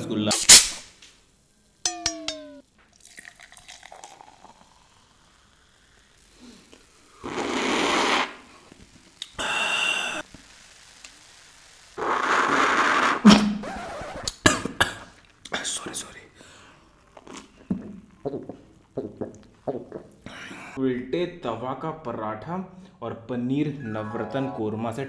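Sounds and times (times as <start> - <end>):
loud sipping: 3.0 - 8.4.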